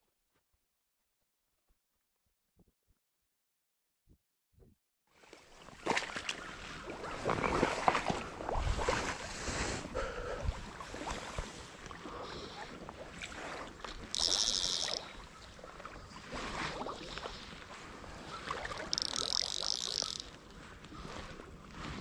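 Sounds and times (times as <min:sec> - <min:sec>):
fly reel buzzing: 0:14.1 - 0:15.1, 0:18.8 - 0:20.4.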